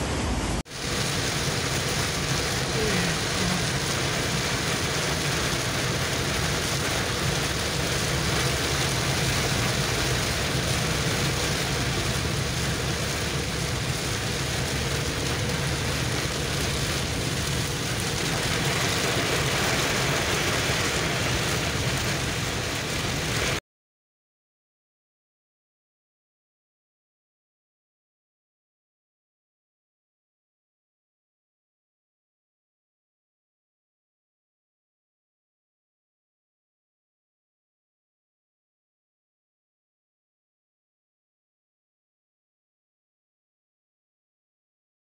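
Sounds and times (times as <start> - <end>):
heavy rain on a car: 0.0 - 23.6
road and engine noise: 0.0 - 23.6.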